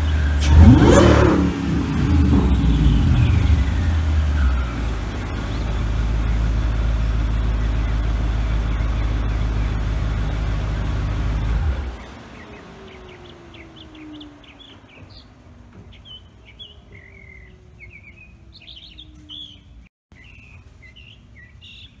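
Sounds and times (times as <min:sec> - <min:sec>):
car engine idling loudly: 0:00.0 - 0:15.2
birds chirping: 0:00.0 - 0:22.0.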